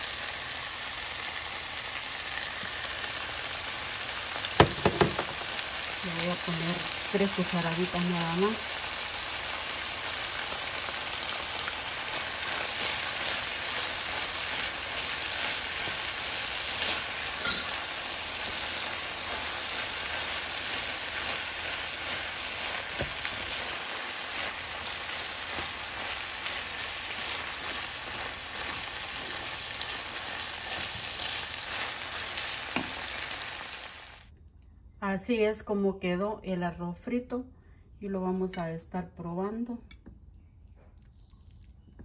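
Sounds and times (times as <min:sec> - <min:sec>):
food sizzling in a skillet: 0:00.0 - 0:34.3
wooden spoon scraping: 0:12.1 - 0:33.4.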